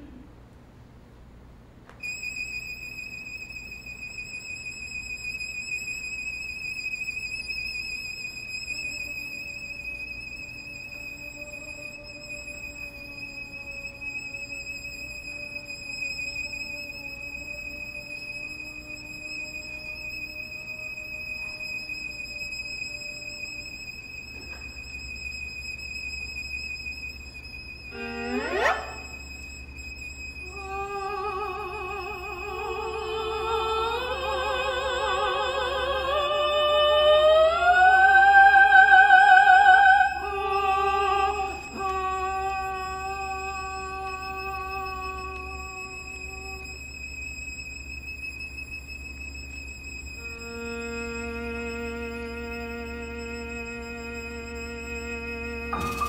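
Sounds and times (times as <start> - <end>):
lower held note: 27.8 - 46.8, 50.2 - 56.0
high held note: 27.9 - 29.3, 55.6 - 56.0.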